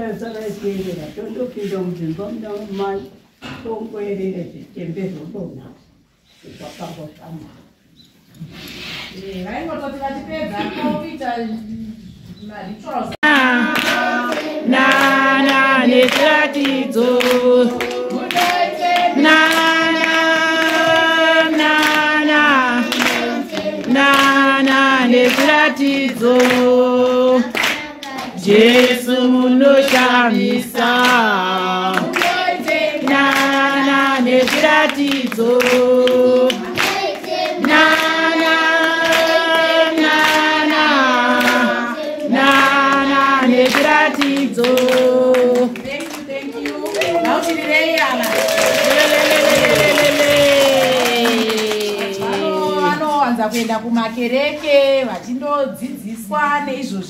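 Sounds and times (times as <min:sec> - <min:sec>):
hand clapping: 0:13.2 - 0:22.1, 0:22.8 - 0:26.8, 0:27.4 - 0:28.4, 0:31.9 - 0:38.2, 0:43.6 - 0:52.5
children singing: 0:13.2 - 0:45.8.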